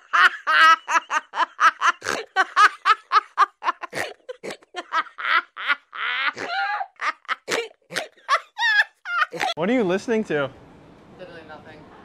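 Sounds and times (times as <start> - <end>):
person laughing: 0.0 - 9.6.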